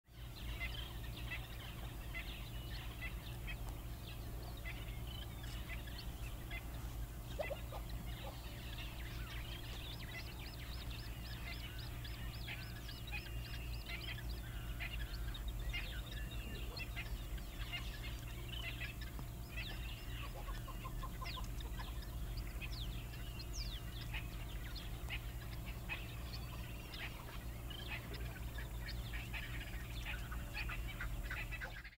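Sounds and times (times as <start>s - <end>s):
birds chirping: 0.0s - 31.9s
low hum: 0.1s - 31.9s
fowl-like clucking calls: 0.3s - 31.9s.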